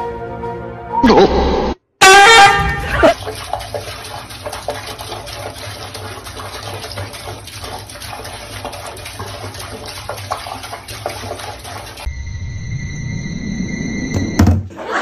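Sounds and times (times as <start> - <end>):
irregular water splashes: 2.2 - 12.1
tap water running into sink: 2.7 - 12.1.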